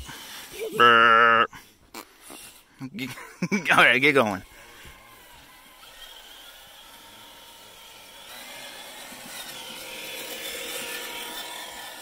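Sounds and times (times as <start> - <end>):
toy truck motor whine: 4.0 - 12.0.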